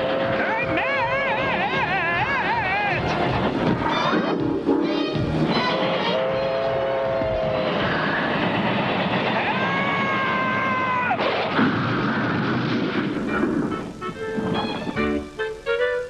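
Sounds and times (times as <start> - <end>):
cartoon rushing roar: 5.5 - 11.6.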